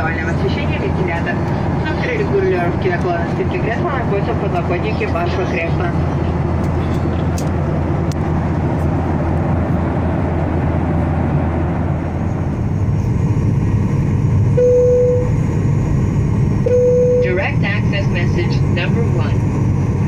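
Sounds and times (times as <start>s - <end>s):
airplane cabin engine rush: 0.0s - 20.0s
short steady tone: 14.6s - 15.4s, 16.6s - 17.4s.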